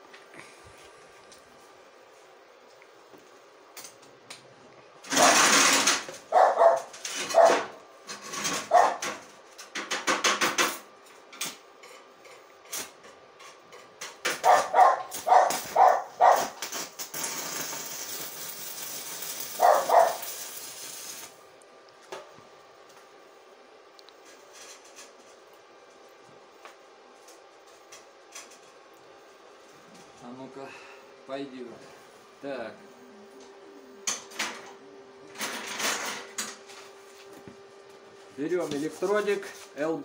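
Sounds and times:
dog barking: 6.3 - 7.8, 8.7 - 9.0, 14.4 - 16.6, 19.6 - 20.2
welding arc crackling: 14.3 - 21.4.

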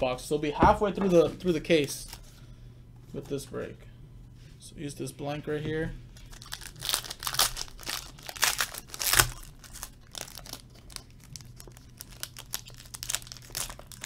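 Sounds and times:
foil wrapper crinkling: 6.1 - 14.0.

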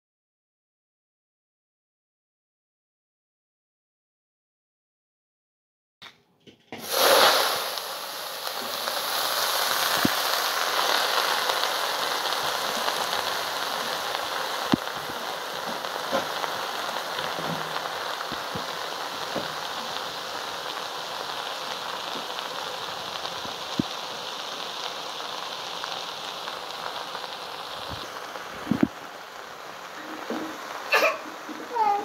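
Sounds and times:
greens sizzling in a pot: 6.7 - 32.0.

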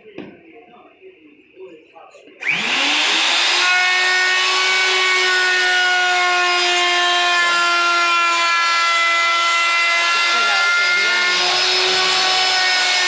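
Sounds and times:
wood router cutting wood: 2.4 - 13.0.

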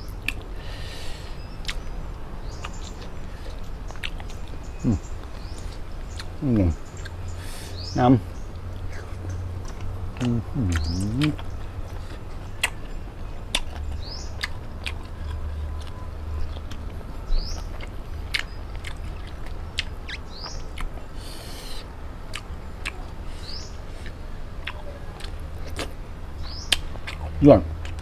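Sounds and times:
bird rising chirp: 0.0 - 14.6, 15.2 - 21.9, 23.3 - 24.3
chewing clicks: 0.1 - 0.5, 1.6 - 7.2, 8.5 - 21.1, 22.3 - 23.2, 24.0 - 28.0.

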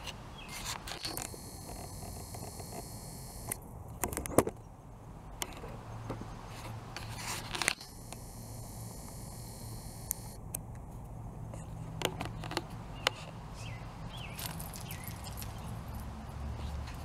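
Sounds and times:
steady outdoor hiss: 0.0 - 17.0
camera handling clicks and scrapes: 0.4 - 4.6, 6.5 - 8.2.

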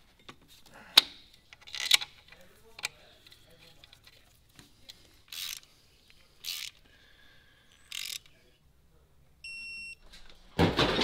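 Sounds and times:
ratchet wrench clicking: 5.3 - 5.6, 6.4 - 6.8, 7.9 - 8.3
short electronic beep: 9.4 - 10.0.

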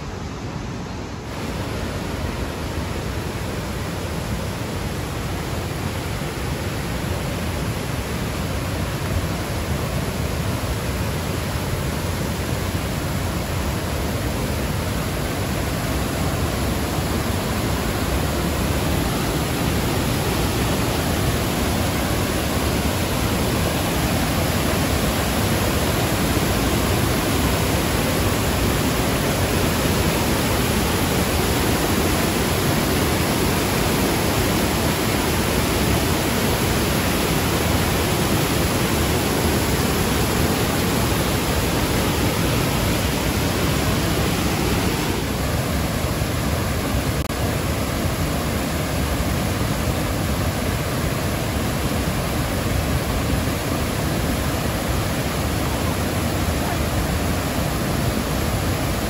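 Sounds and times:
waterfall pouring over rocks: 1.3 - 59.0.

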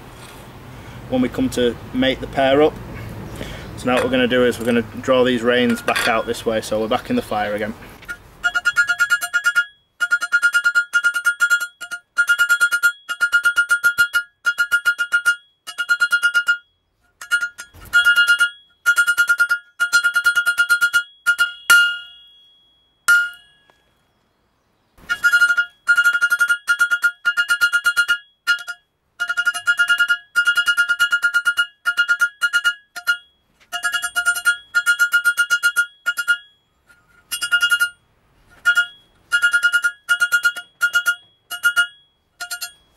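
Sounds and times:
hammer on anvil: 17.2 - 23.7.

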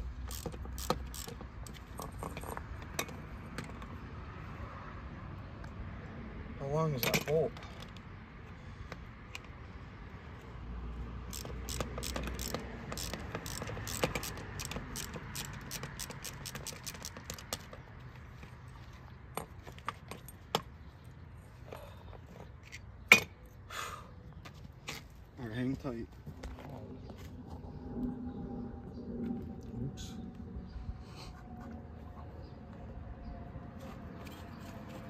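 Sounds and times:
hand ratchet clicking: 0.2 - 1.9, 11.3 - 17.8.

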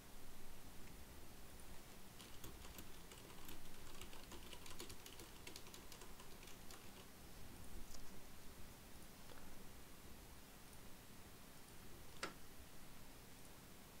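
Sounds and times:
keyboard typing: 2.2 - 7.1.

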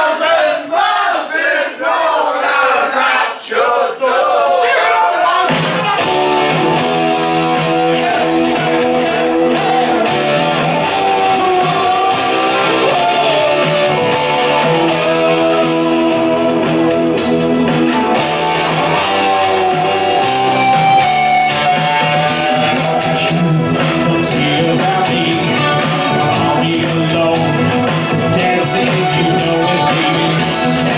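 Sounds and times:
live rock band playing: 5.4 - 30.9
electric guitars strumming: 5.5 - 30.9.

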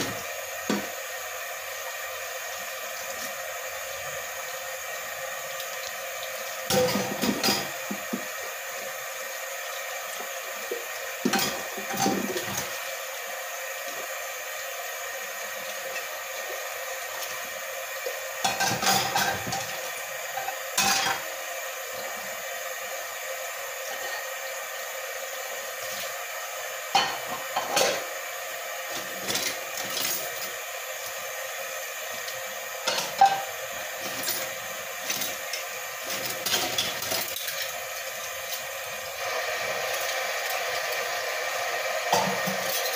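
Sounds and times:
tap water running: 0.0 - 42.9
pans and cutlery clinking: 6.7 - 7.8, 18.4 - 21.2, 26.9 - 28.1, 32.8 - 33.5.

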